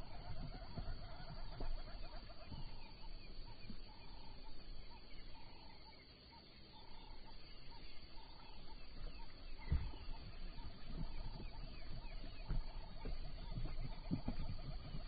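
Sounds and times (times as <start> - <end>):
dull thuds: 8.2 - 15.0.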